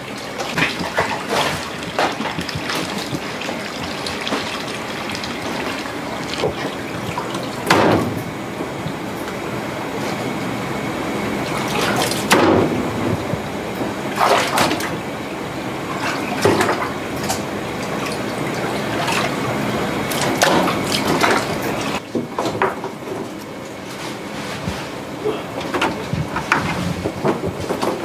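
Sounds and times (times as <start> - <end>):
water running: 0.0 - 22.1.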